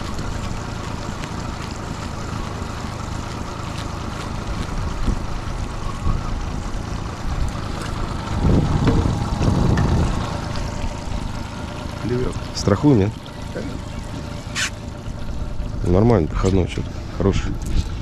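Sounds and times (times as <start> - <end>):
outboard motor running: 0.0 - 18.0
wind buffeting microphone: 4.5 - 11.4.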